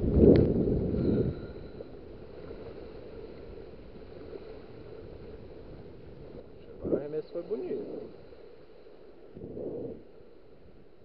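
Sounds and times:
wind buffeting microphone: 0.0s - 8.4s, 9.2s - 11.0s.

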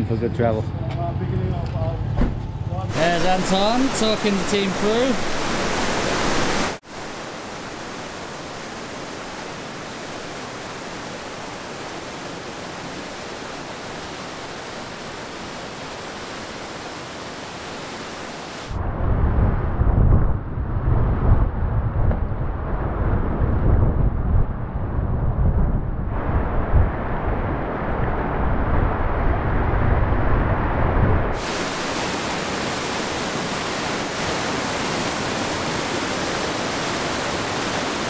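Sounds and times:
whitewater rapids roaring: 2.9s - 18.8s, 31.4s - 38.0s
wind buffeting microphone: 18.7s - 31.5s.

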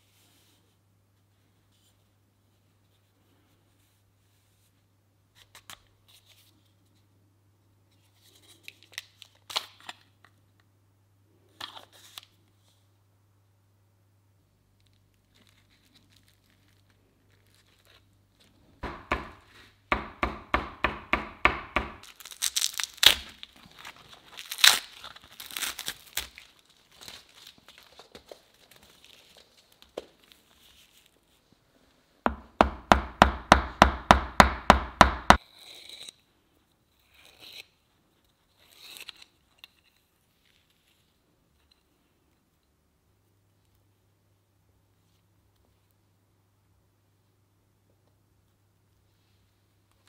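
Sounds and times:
fibres crackling and tearing: 14.8s - 18.6s, 22.0s - 31.2s.

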